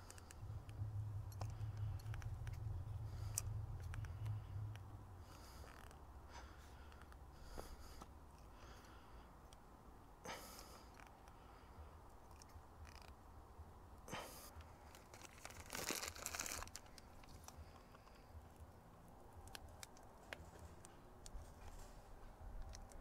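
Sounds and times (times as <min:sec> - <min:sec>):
rustling and crinkling: 0:00.0 - 0:08.2, 0:12.2 - 0:13.2, 0:14.5 - 0:23.0.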